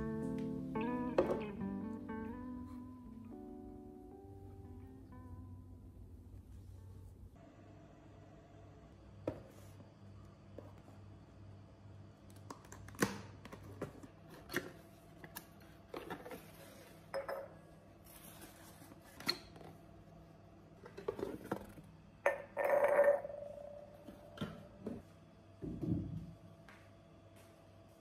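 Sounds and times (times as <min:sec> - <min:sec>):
glass bowls clinking: 0:17.1 - 0:17.6, 0:22.3 - 0:24.6
glass ringing: 0:22.3 - 0:24.1.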